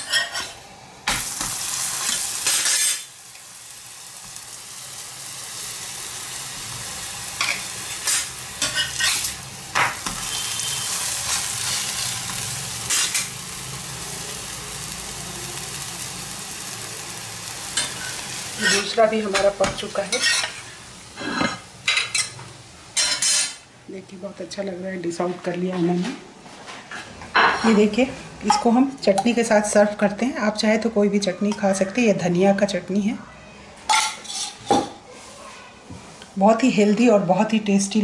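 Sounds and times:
metal spatula scraping griddle: 0.0s - 3.2s, 7.3s - 13.4s, 17.7s - 19.0s
flatbread sizzling on griddle: 0.0s - 21.1s.

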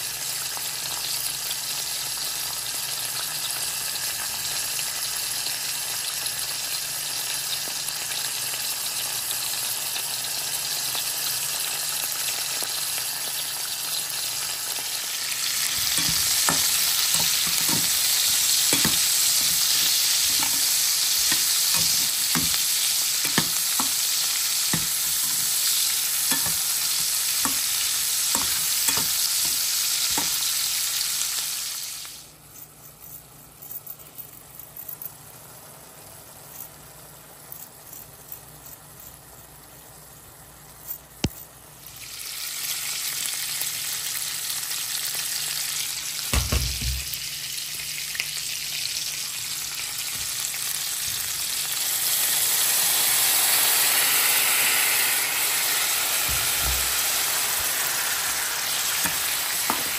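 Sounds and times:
oil sizzling in a frying pan: 0.0s - 32.5s, 35.2s - 59.9s
spatula scraping a pan: 15.5s - 30.6s.

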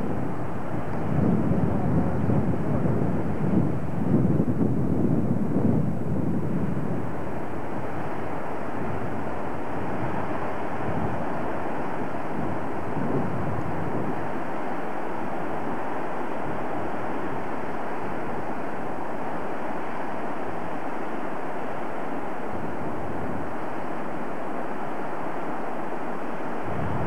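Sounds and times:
torrent rushing over waterfall: 0.0s - 27.0s
wind buffeting microphone: 0.0s - 27.0s.

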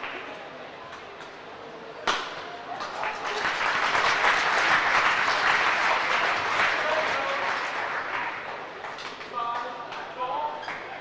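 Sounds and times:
crowd applauding: 2.8s - 9.3s.

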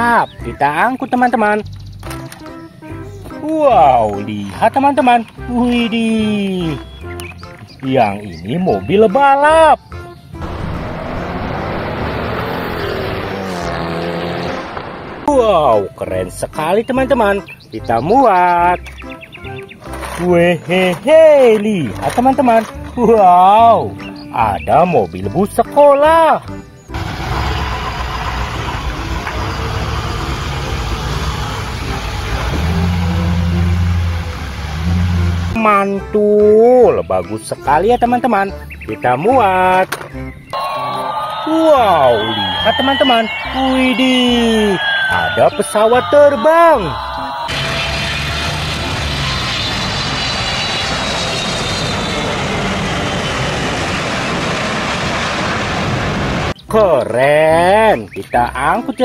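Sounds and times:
tyres hissing on wet pavement: 27.0s - 35.5s
bus engine running: 27.0s - 35.6s, 47.5s - 56.5s
jet engines roaring with whine: 40.6s - 56.6s.

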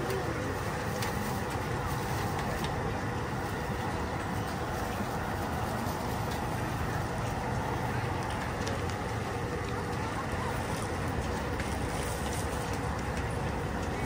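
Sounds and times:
indistinct activity: 0.0s - 14.0s.

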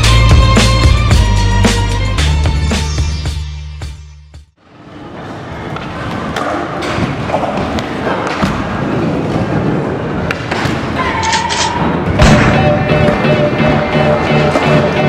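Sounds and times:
steady musical tones: 12.3s - 15.0s.

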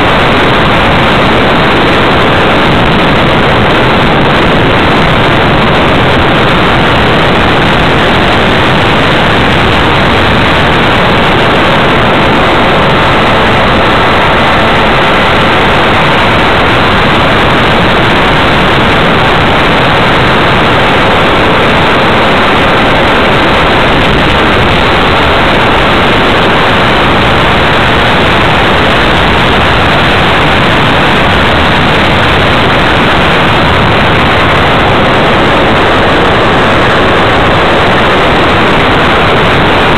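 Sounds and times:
propeller and airflow rush: 0.0s - 39.9s.

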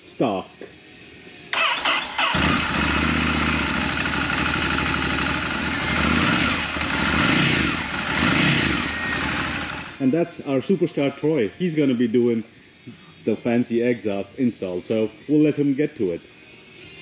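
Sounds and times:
motorcycle engine starting and idling: 1.5s - 10.0s.

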